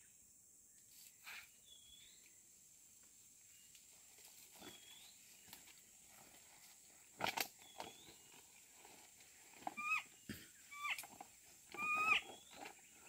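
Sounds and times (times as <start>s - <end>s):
high-pitched animal cries: 9.7s - 11.1s, 11.7s - 12.4s.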